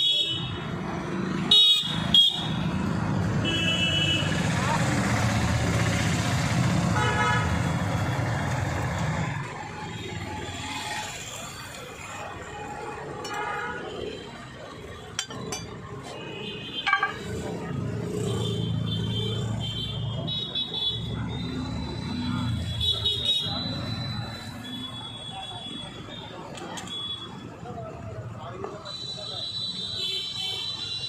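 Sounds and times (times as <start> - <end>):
car horn honks: 7.0 - 7.6, 16.2 - 17.4.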